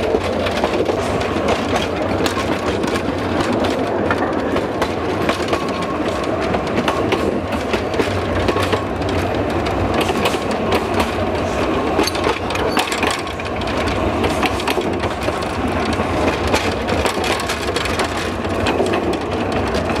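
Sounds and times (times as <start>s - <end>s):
wheels rumbling on rail: 0.0s - 20.0s
wooden wagon rattling and clicking: 0.0s - 20.0s.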